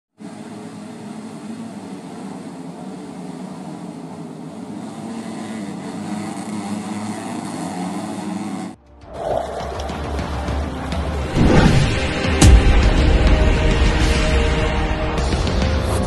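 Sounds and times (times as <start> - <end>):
dirt bike engines revving: 0.2 - 8.8, 9.4 - 12.4.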